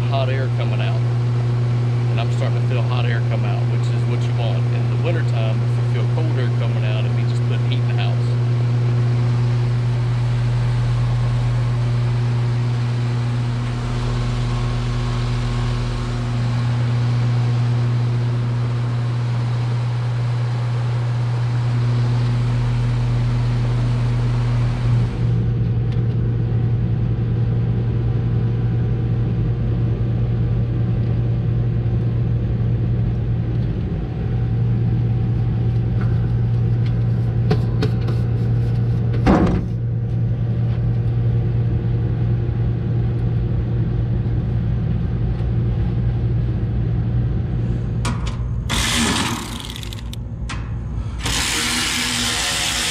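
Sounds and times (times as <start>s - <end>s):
condenser fan air noise: 0.0s - 52.9s
heat pump unit humming: 0.0s - 52.9s.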